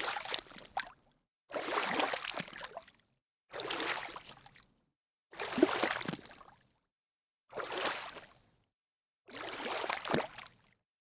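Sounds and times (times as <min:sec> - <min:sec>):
water splashing and bubbling: 0:00.0 - 0:04.6, 0:05.4 - 0:06.6, 0:07.5 - 0:08.4, 0:09.3 - 0:10.7.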